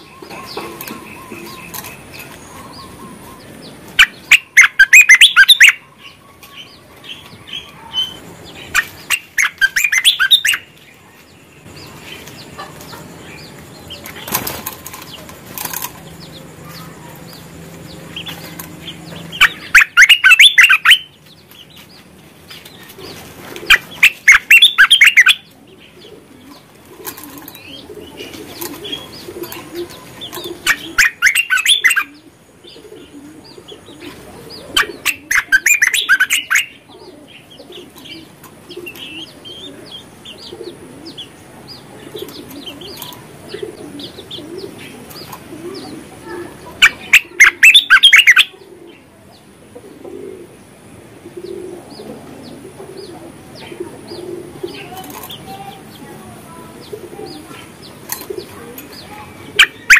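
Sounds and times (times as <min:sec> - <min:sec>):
bird singing rapid phrases: 0:00.0 - 0:49.5, 0:51.9 - 0:59.9
soft bird chirps: 0:00.0 - 0:49.5.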